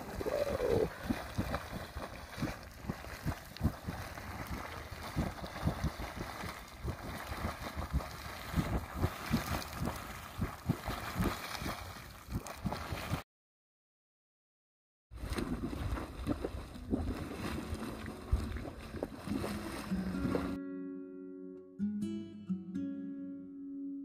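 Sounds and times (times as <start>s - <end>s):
geyser water rushing and splashing: 0.0s - 13.2s, 15.2s - 20.4s.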